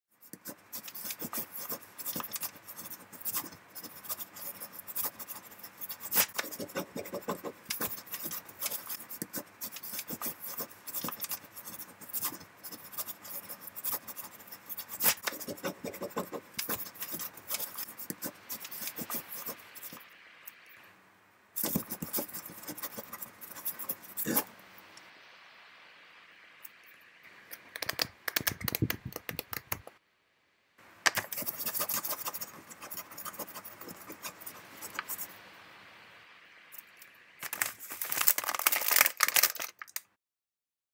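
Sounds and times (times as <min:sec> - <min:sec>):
pen nibs scratching on paper: 0:00.2 - 0:20.0, 0:21.6 - 0:24.5, 0:27.5 - 0:29.8, 0:31.2 - 0:35.3.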